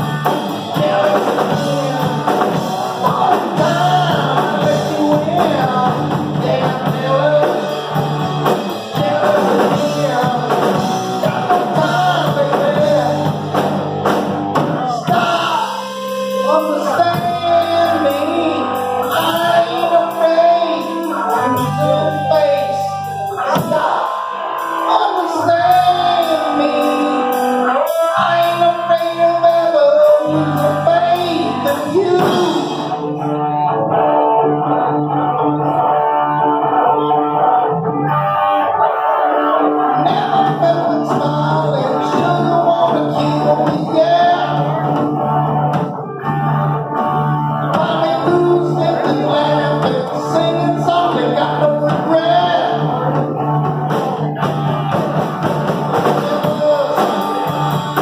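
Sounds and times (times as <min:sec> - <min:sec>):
drum kit: 0:00.0 - 0:33.2, 0:40.0 - 0:58.0
bass guitar: 0:00.0 - 0:58.0
electric guitars: 0:00.0 - 0:58.0
person singing: 0:00.0 - 0:58.0.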